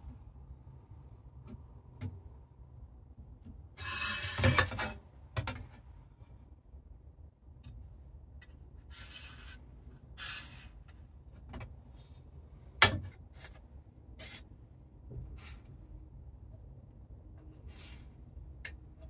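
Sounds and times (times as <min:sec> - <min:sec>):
metal scraping on table saw: 0:03.8 - 0:04.8.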